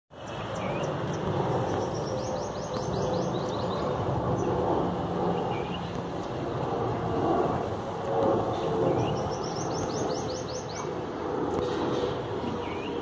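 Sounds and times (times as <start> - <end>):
bird chirping: 0.1 - 4.6, 8.9 - 11.0, 12.6 - 13.0
passenger jet flying overhead: 0.1 - 13.0.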